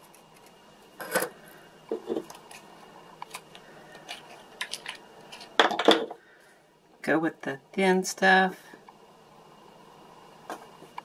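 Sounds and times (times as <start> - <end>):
plastic items clicking and tapping: 3.2 - 6.2.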